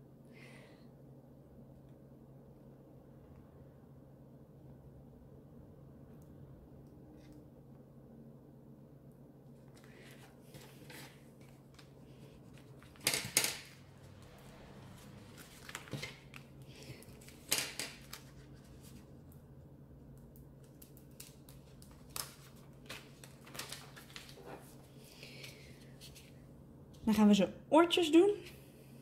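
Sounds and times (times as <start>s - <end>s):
faint steady hum: 0.0s - 29.0s
vinyl sheets crinkling: 9.6s - 19.4s, 20.6s - 26.4s.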